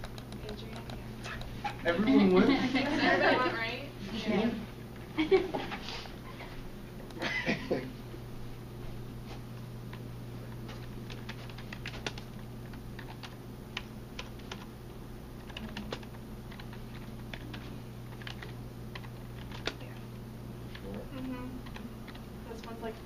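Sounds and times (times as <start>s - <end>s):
light clicks and taps: 0.0s - 1.5s
low room hum: 0.0s - 23.0s.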